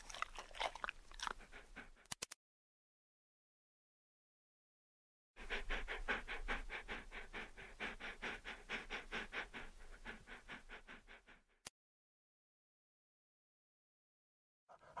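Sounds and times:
small dog panting: 0.0 - 2.1, 5.4 - 11.7, 14.7 - 15.0.

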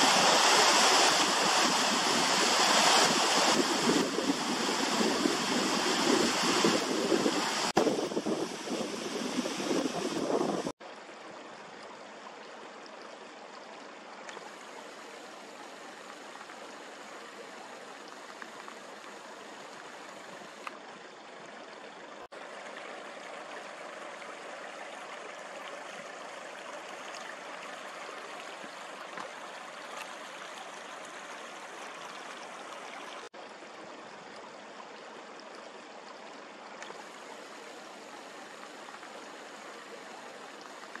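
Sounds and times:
river water rushing: 0.0 - 12.8, 22.2 - 33.3.

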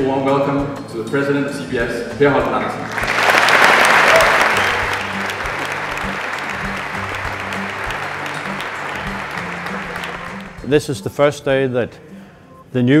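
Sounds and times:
background music: 0.0 - 13.0
audience applauding: 2.8 - 10.7.

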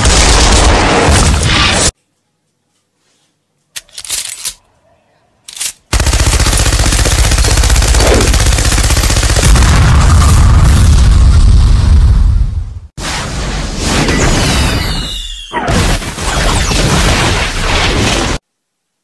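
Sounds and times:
machine gun firing: 5.9 - 10.4.

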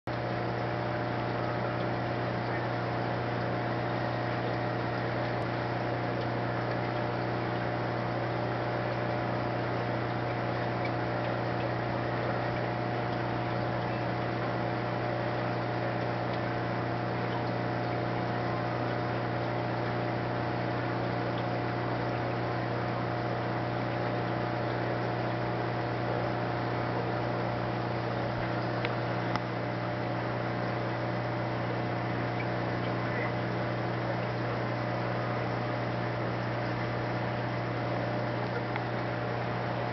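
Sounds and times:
electrical machine hum with tones: 0.1 - 39.9
small click: 28.8 - 29.5.

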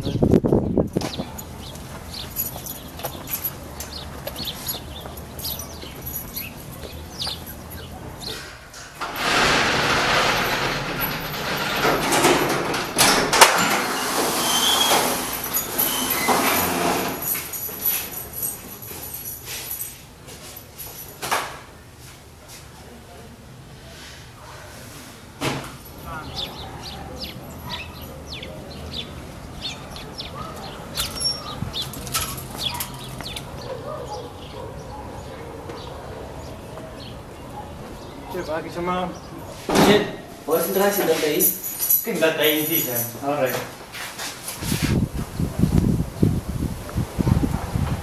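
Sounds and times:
small birds chirping: 0.0 - 8.5, 26.1 - 39.6.

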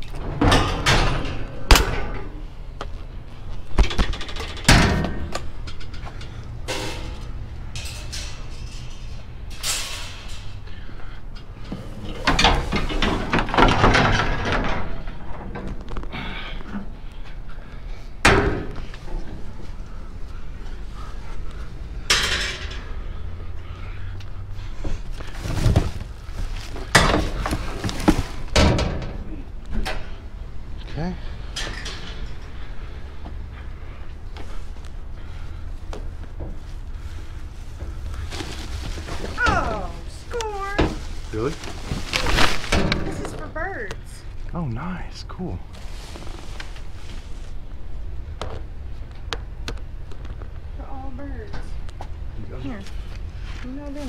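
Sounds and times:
steady low hum: 0.0 - 54.0
objects knocking and thudding: 11.6 - 16.1, 24.9 - 30.1.

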